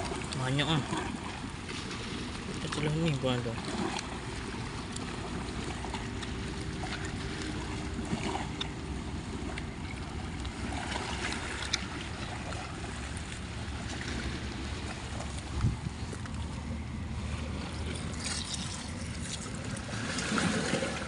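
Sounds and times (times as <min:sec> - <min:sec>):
small splashes and clicks: 0:00.0 - 0:08.8, 0:09.4 - 0:16.6, 0:17.7 - 0:21.0
steady low rumble: 0:00.0 - 0:21.0
hand swishing through muddy water: 0:17.3 - 0:21.0.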